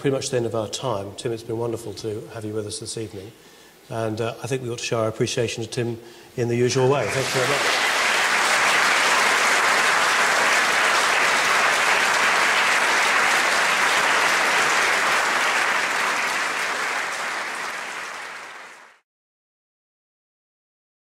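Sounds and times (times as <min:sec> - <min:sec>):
large audience clapping: 0:06.9 - 0:19.0.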